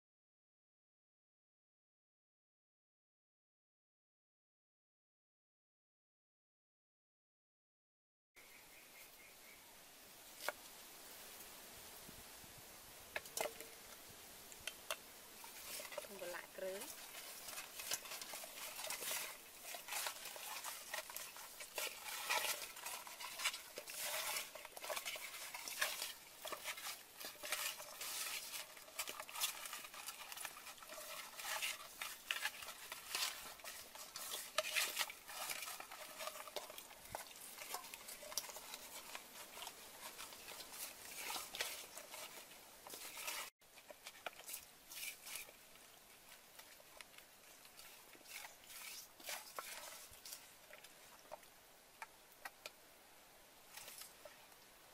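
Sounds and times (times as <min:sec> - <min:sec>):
hands rubbing raw chicken: 0:15.4 - 0:51.4.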